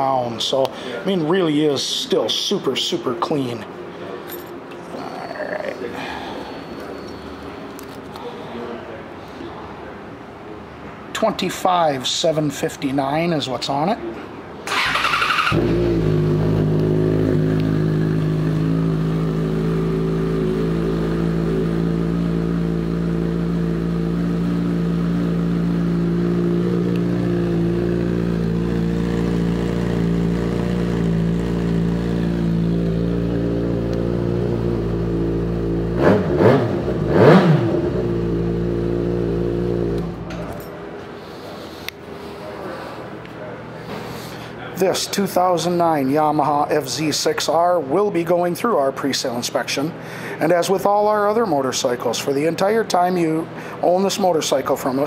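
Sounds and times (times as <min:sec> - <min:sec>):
motorcycle engine idling: 0:14.7 - 0:36.0
motorcycle throttle blips: 0:14.7 - 0:40.6.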